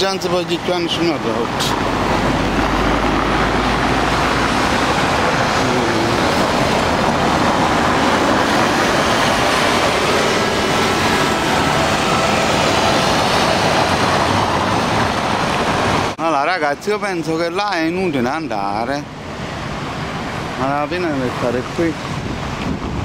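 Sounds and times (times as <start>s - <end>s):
cars driving on cobbles: 0.0s - 16.2s, 16.8s - 23.0s
street-cleaning truck passing: 0.0s - 16.2s, 17.0s - 23.0s
motorcycle passing: 1.6s - 16.2s.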